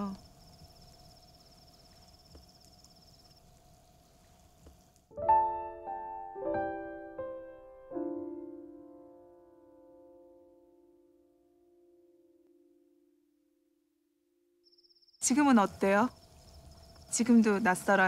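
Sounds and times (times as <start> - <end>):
crickets trilling: 0.0 - 5.1, 14.6 - 18.0
soft piano chords: 5.1 - 13.8.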